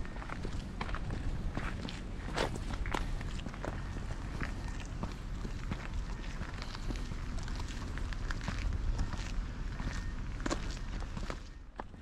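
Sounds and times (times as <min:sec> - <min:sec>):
footsteps walking: 0:00.0 - 0:12.0
steady low rumble: 0:00.0 - 0:12.0.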